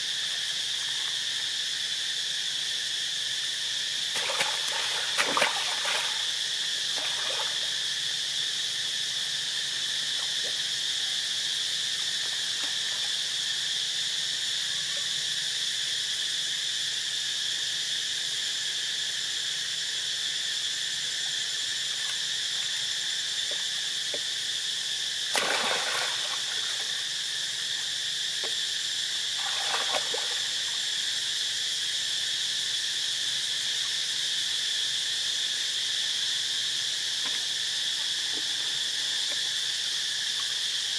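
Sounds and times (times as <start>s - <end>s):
insects droning: 0.0s - 40.9s
water splashes: 4.1s - 7.6s, 25.3s - 27.0s, 29.4s - 30.7s.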